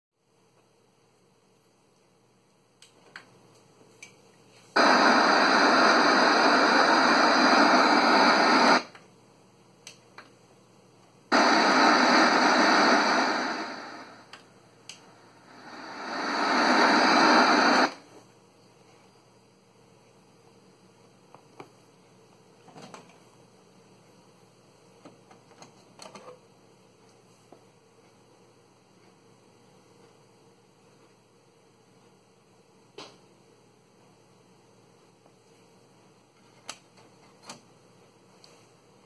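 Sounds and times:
tv static hiss: 4.5s - 9.9s, 10.6s - 18.7s.

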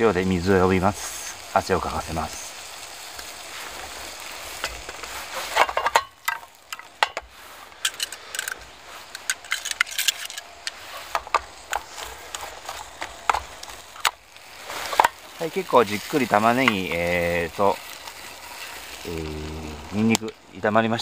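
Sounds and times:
garlic and onions sizzling: 0.0s - 21.0s
stirring scrapes against pan: 3.4s - 6.0s.

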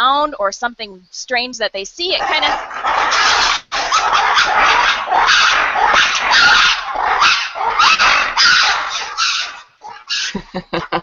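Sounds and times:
lemurs roar-shriek chorus: 2.3s - 10.4s.

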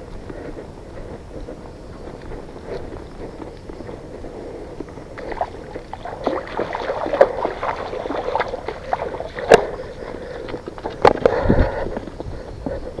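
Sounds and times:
footsteps splashing in stream: 5.2s - 11.2s.

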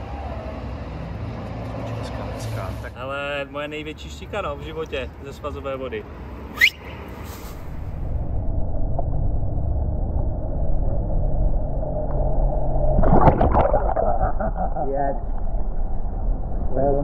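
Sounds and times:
muffled underwater rumble: 7.7s - 17.0s
water splashing: 13.0s - 14.5s.

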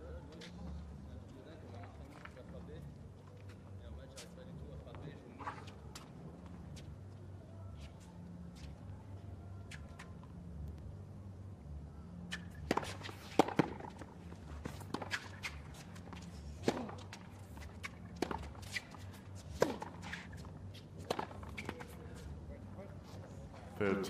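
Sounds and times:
low arena hum: 0.0s - 24.0s
tennis ball bouncing on court: 12.6s - 18.8s, 21.0s - 22.0s.

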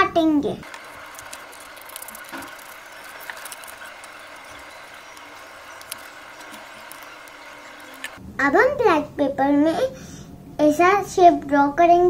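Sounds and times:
paper rustling: 0.6s - 8.2s.

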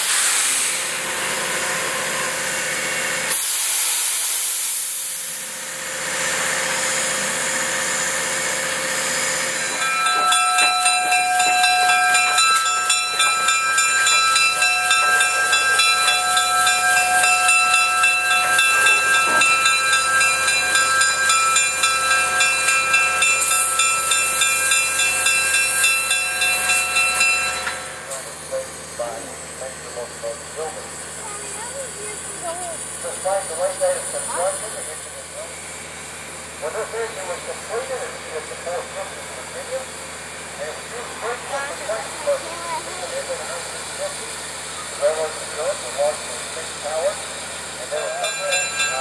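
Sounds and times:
steam locomotive hissing: 0.0s - 49.0s
ringing high tones pulsing: 9.6s - 28.0s, 47.9s - 49.0s.

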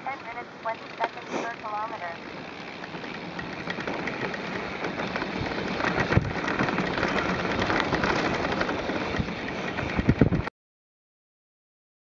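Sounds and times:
tyres rolling on dirt trail: 0.0s - 10.5s
bike rattling clicks: 0.1s - 10.5s
wind rushing over microphone: 4.6s - 10.5s.

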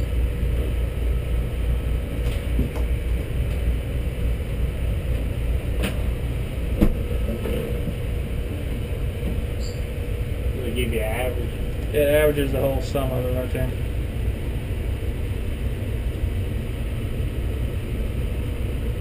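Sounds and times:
faint hum: 0.0s - 19.0s
machinery rumbling: 0.0s - 19.0s.

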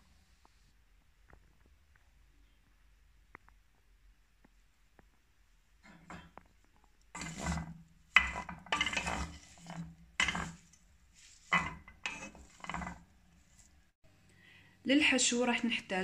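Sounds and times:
wooden spoon scraping a pan: 5.8s - 13.9s.

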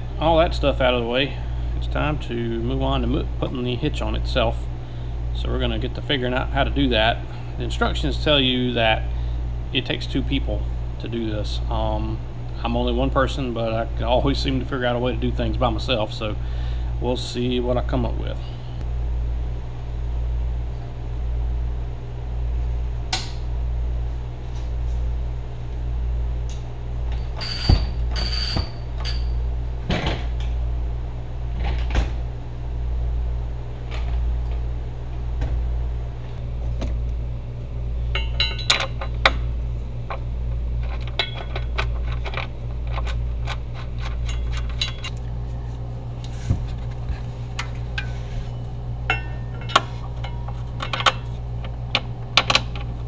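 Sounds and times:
low pulsing hum: 0.0s - 53.0s
metal clinks and taps: 38.1s - 39.0s.

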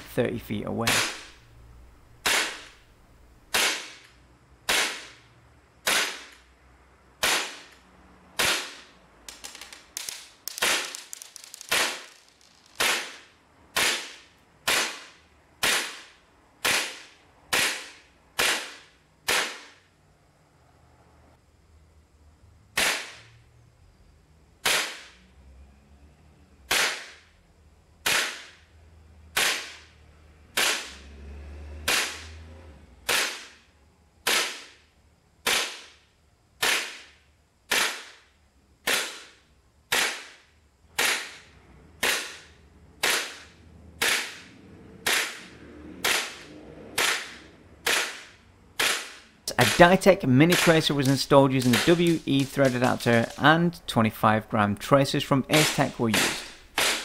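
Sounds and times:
airsoft pistol shots: 0.8s - 1.4s, 2.2s - 2.8s, 3.5s - 5.2s, 5.8s - 6.4s, 7.2s - 7.8s, 8.4s - 8.9s, 10.0s - 11.0s, 11.6s - 12.1s, 12.8s - 19.8s, 22.8s - 23.2s, 24.6s - 25.2s, 26.7s - 27.2s, 28.0s - 28.6s, 29.3s - 29.9s, 30.6s - 31.0s, 31.9s - 32.3s, 33.1s - 33.6s, 34.2s - 34.8s, 35.4s - 36.0s, 36.6s - 37.1s, 37.7s - 38.2s, 38.8s - 40.4s, 41.0s - 41.4s, 42.0s - 44.4s, 45.0s - 53.4s, 55.5s - 57.0s.

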